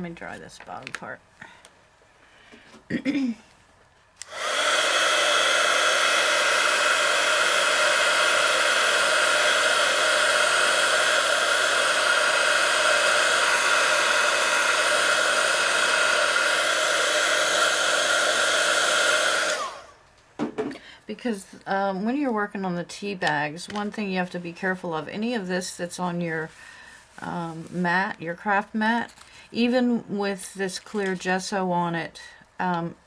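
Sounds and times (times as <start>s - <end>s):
handheld dryer blowing: 4.2s - 20.0s.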